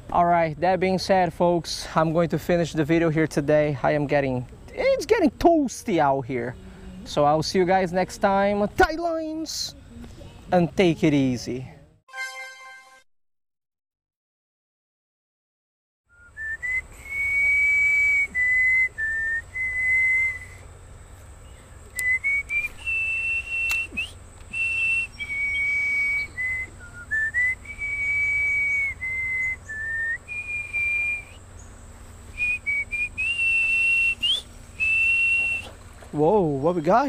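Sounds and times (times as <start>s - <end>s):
person whistling a slow tune: 16.1s - 20.6s, 21.9s - 31.4s, 32.4s - 35.8s.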